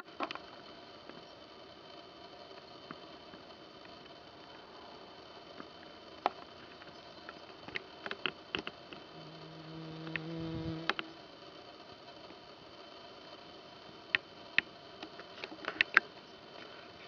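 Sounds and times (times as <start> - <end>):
faint outdoor hiss: 0.0 - 17.0
flying insect buzzing: 4.2 - 11.4.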